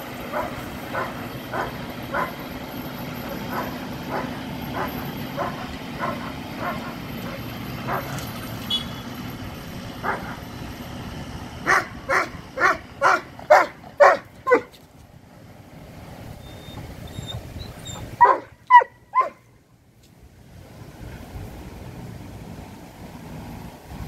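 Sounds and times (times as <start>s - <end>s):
tractor engine running: 0.0s - 24.0s
dog barking: 0.3s - 2.4s, 3.4s - 8.2s, 10.0s - 10.4s, 11.7s - 14.7s, 18.2s - 19.4s.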